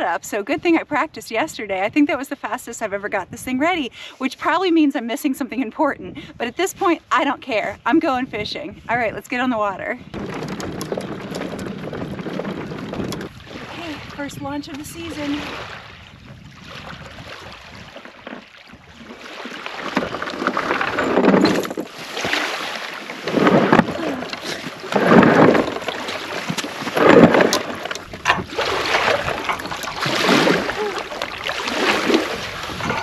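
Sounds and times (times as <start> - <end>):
kayak hull scraping on wooden ramp: 10.1 - 14.1, 16.8 - 33.0.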